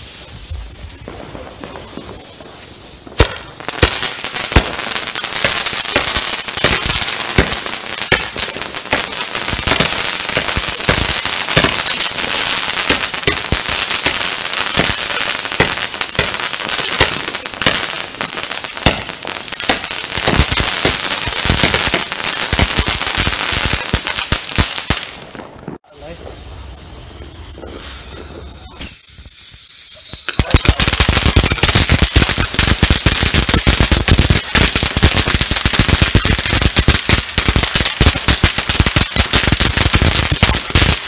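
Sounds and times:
sharp crackles and pops: 0.0s - 28.0s
firework fountain hissing: 0.0s - 41.0s.

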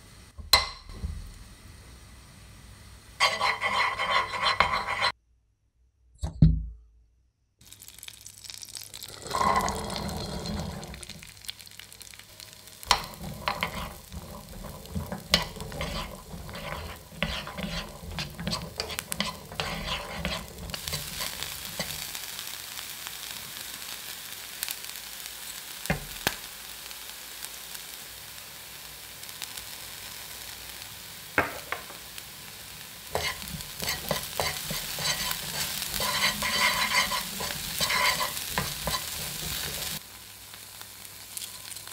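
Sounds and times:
corn sizzling in a pan: 0.0s - 5.2s, 7.6s - 41.9s
wooden spatula clicking and scraping: 3.2s - 5.2s, 12.9s - 21.9s, 33.1s - 40.0s.

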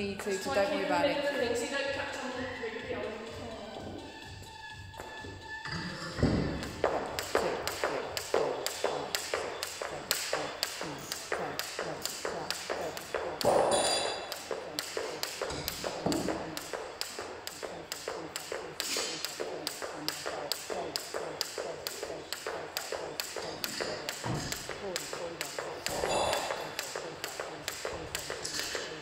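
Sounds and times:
jump rope tapping wooden platform: 6.2s - 29.0s.

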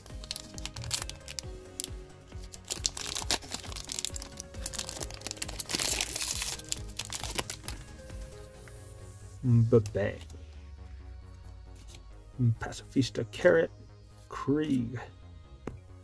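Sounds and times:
wrapper crinkling and tearing: 0.0s - 8.2s
background music: 0.0s - 16.0s.

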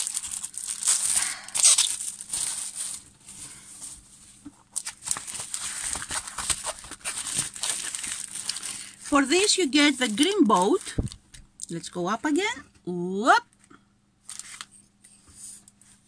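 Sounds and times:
plastic wrapping crinkling: 0.0s - 11.4s, 14.2s - 14.7s.

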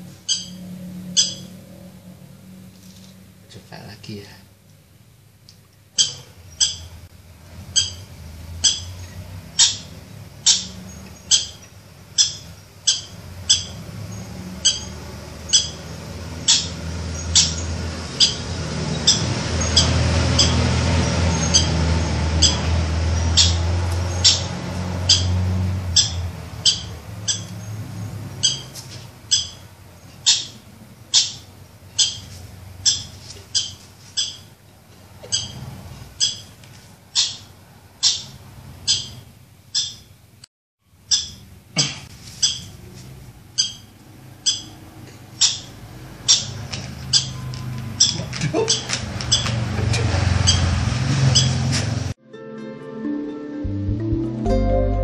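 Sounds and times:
low rumbling noise: 0.0s - 5.2s.

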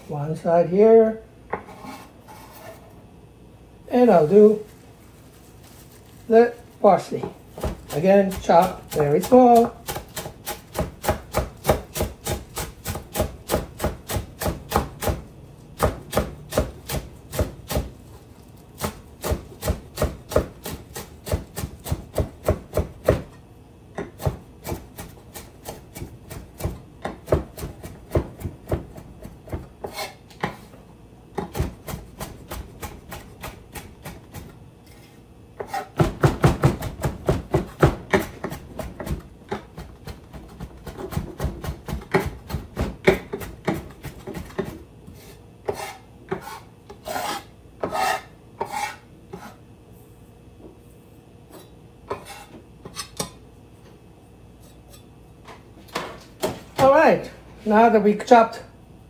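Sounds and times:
knife chopping on cutting board: 7.2s - 15.2s, 15.8s - 17.9s, 18.8s - 23.4s, 24.0s - 30.7s, 31.3s - 34.5s, 35.6s - 49.6s.

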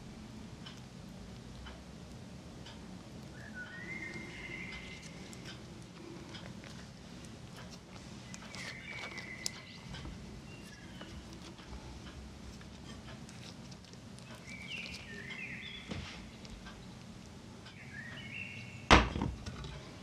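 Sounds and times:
steady low hum: 0.0s - 20.0s
utensils clicking and tapping: 4.1s - 15.5s.

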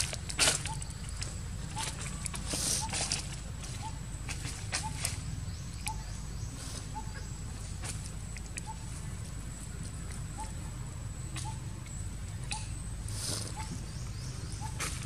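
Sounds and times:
small chirps: 11.3s - 15.0s.

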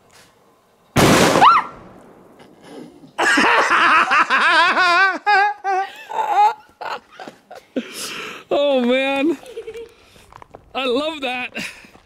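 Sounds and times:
explosive charge bang: 1.0s - 2.6s
man laughing loudly: 2.6s - 8.0s.

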